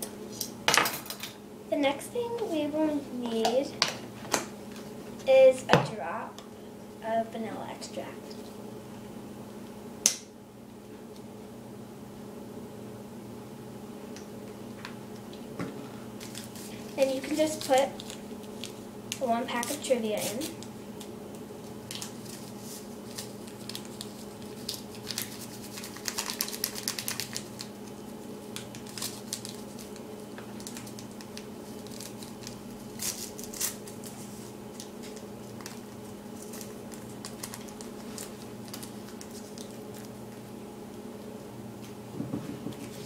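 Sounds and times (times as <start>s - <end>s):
steady low hum: 0.0s - 43.0s
paper packet tearing and crackling: 16.2s - 18.8s, 21.9s - 40.2s.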